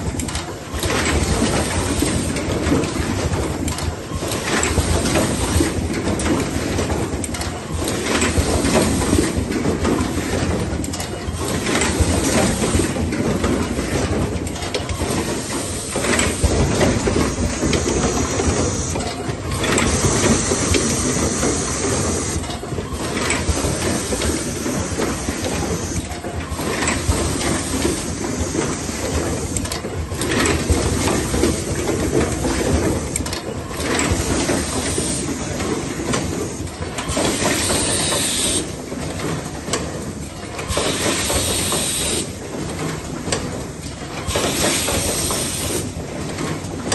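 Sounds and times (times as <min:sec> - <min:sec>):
machine mechanical clatter: 0:00.0 - 0:46.9.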